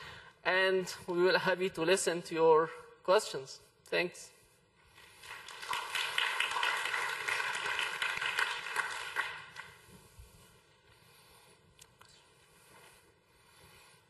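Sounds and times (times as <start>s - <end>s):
audience applauding: 5.0s - 9.8s.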